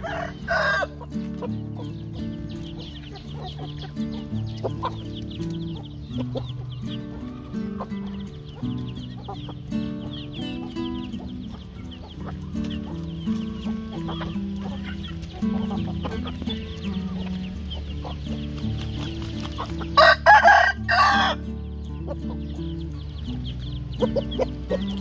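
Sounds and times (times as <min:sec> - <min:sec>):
rooster crowing: 0:00.0 - 0:01.0, 0:20.0 - 0:21.5
chickens clucking: 0:00.0 - 0:25.0
music with sustained low notes: 0:00.0 - 0:25.0.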